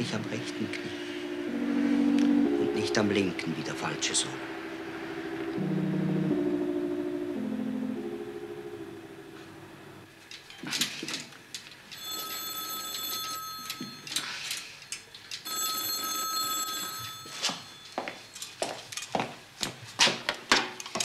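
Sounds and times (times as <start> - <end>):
telephone bell ringing: 11.9 - 14.4, 15.4 - 18.4.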